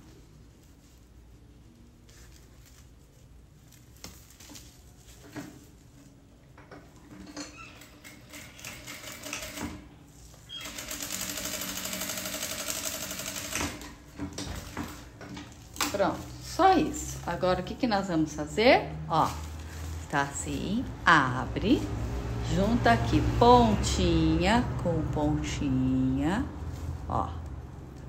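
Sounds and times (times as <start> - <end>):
fabric rustling: 0.0 - 7.2, 14.0 - 23.8, 25.8 - 28.0
sewing machine stitching: 7.1 - 9.8, 10.5 - 14.0.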